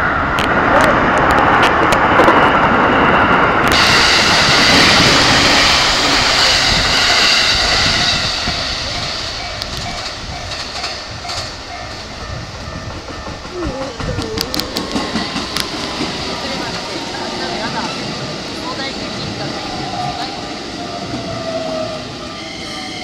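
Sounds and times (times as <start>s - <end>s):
electric train passing: 0.0s - 23.0s
wheels clattering over rails: 3.7s - 20.3s.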